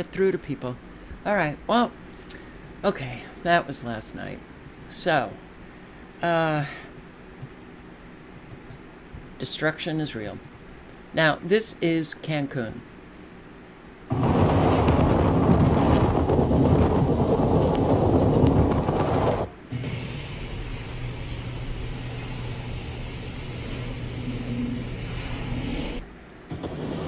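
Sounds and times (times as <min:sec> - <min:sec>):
faint low hum: 0:00.0 - 0:27.0
strong wind buffeting microphone: 0:14.1 - 0:19.5
driving rain: 0:14.1 - 0:26.0.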